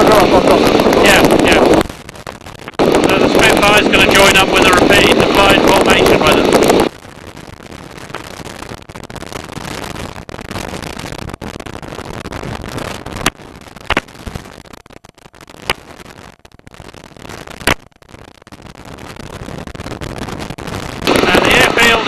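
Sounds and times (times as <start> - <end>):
biplane rushing in flight: 0.0 - 1.8, 2.7 - 6.9, 21.0 - 22.0
sharp crackling pops: 0.0 - 22.0.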